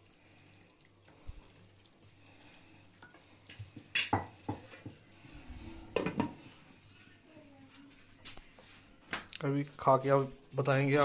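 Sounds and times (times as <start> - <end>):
ladle stirring and knocking pan: 3.0 - 6.4.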